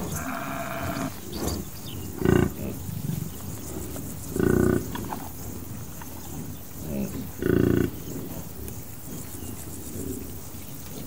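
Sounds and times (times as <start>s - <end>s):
buffalo deep grunts: 0.0s - 2.9s
faint insects chirring: 0.0s - 11.0s.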